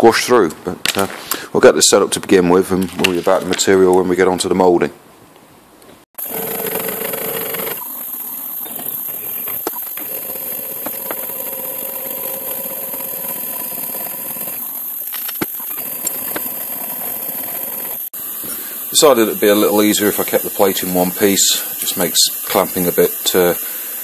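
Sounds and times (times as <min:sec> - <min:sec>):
milling machine spindle drilling metal: 0:06.2 - 0:18.1.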